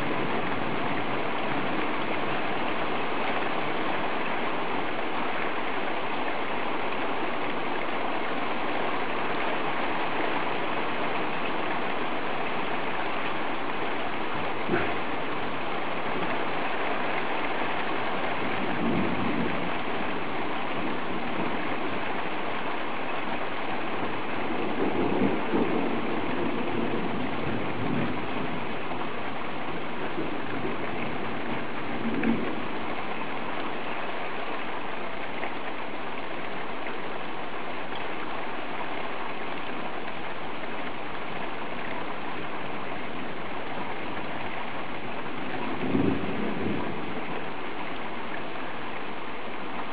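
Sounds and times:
rain hissing on street: 0.0s - 49.9s
low rumbles: 14.4s - 16.7s.

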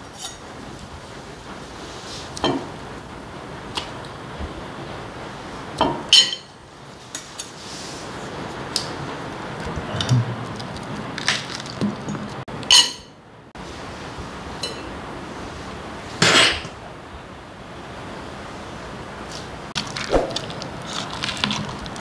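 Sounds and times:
utensils clinking on ceramic plates: 12.7s - 13.2s.

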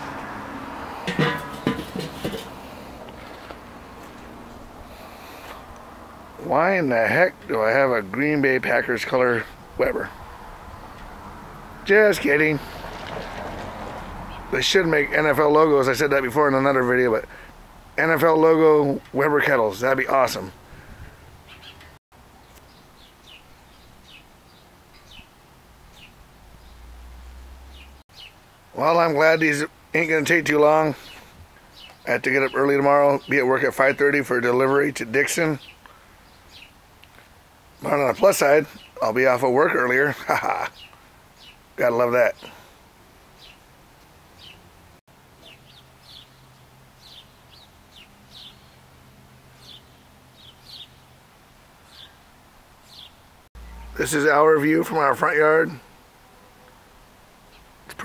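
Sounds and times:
faint outdoor background noise: 0.0s - 58.0s
small birds chirping: 16.1s - 28.7s, 29.3s - 44.7s, 45.3s - 51.2s, 51.8s - 55.9s, 57.4s - 58.0s
small bird chirping: 21.5s - 25.3s, 45.4s - 48.8s, 52.8s - 54.0s.

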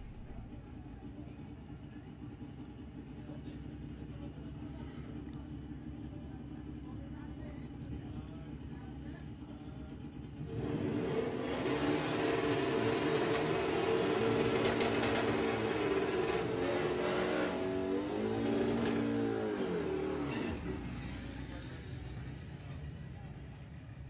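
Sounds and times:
car engine revving: 0.0s - 0.6s, 10.4s - 22.3s
tyres spinning: 12.4s - 20.4s.

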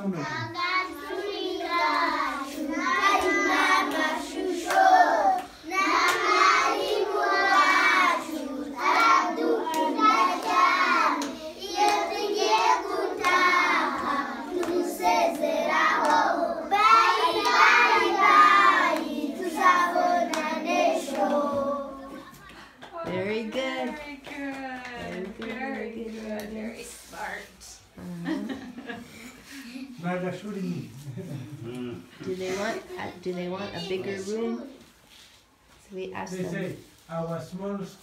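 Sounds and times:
children singing together: 0.4s - 22.4s
hand claps: 20.2s - 21.4s, 23.8s - 26.5s.

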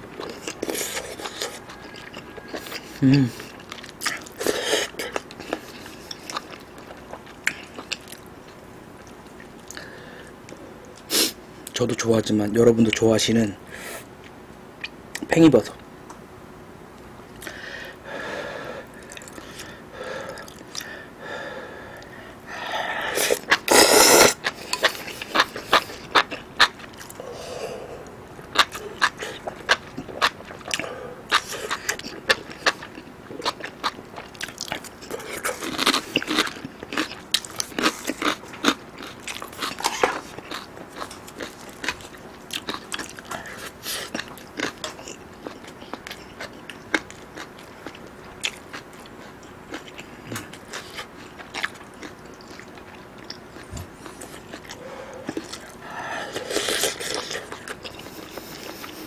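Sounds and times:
close chewing: 0.1s - 8.3s, 24.4s - 59.0s.

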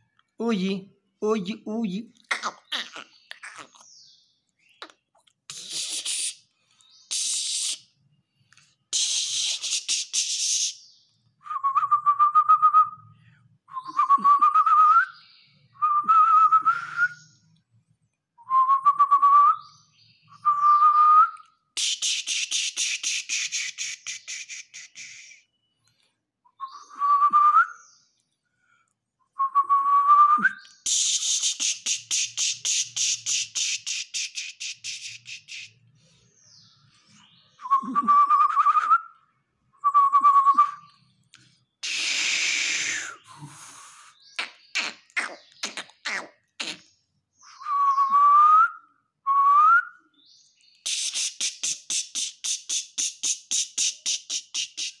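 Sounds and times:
sharp mouth clicks: 4.8s - 6.4s, 21.8s - 25.4s, 30.9s - 35.7s, 44.4s - 46.8s, 50.8s - 55.0s
person hissing: 5.5s - 6.5s, 7.1s - 7.9s, 8.9s - 10.8s, 21.8s - 25.4s, 30.9s - 35.8s, 41.8s - 46.8s, 50.8s - 55.0s
person whistling: 37.6s - 39.0s, 47.6s - 50.0s.

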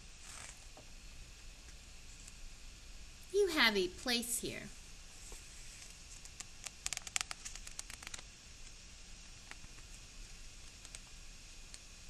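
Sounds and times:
faint hiss: 0.0s - 12.0s
paper page turning: 0.2s - 0.6s.

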